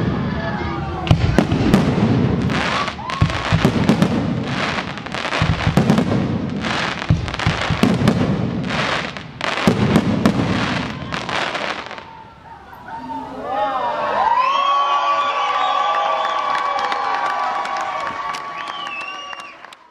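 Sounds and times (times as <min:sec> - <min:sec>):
firework bangs: 0:00.0 - 0:12.2
firework crackling: 0:00.0 - 0:12.3
rising firework whistle: 0:00.0 - 0:12.3, 0:14.2 - 0:19.9.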